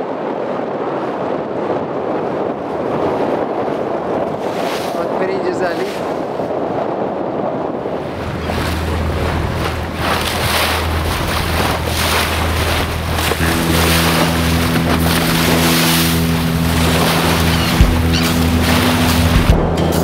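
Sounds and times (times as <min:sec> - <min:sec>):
water splashing along hull: 0:00.0 - 0:20.0
wind buffeting microphone: 0:00.0 - 0:20.0
boat engine drone: 0:07.4 - 0:20.0
hum of held tones: 0:13.4 - 0:19.4.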